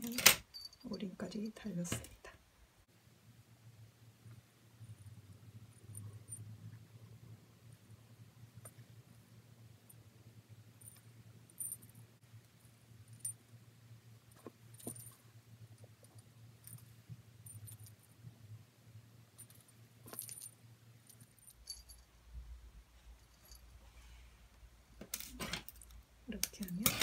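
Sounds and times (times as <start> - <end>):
small jingle bell tinkling: 0.0 - 1.1, 4.8 - 6.6, 16.0 - 18.1, 19.3 - 22.2, 23.1 - 23.8
faint steady hum: 0.0 - 27.0.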